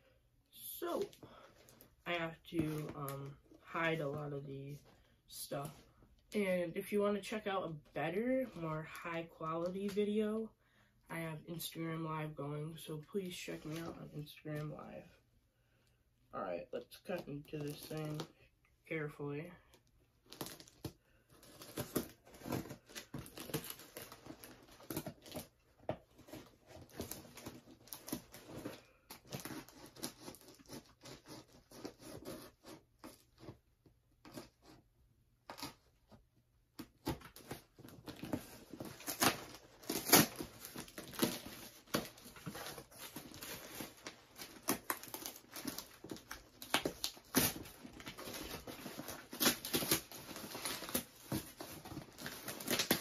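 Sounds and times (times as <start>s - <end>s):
cardboard box tearing: 37.0s - 53.0s.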